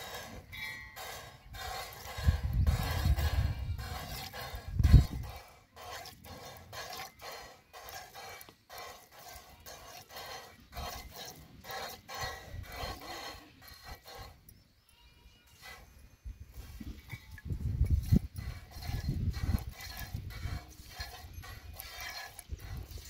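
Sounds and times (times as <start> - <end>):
milk squirting into a pail: 2.8 - 12.0.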